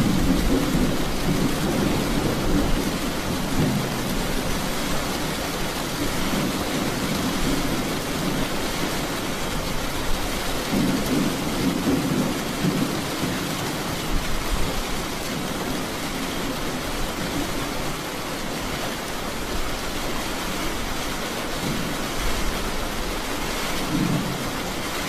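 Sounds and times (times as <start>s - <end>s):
thunder rumbling: 0.0s - 4.8s, 10.6s - 15.9s, 22.8s - 25.0s
steady rain hissing: 0.0s - 25.0s.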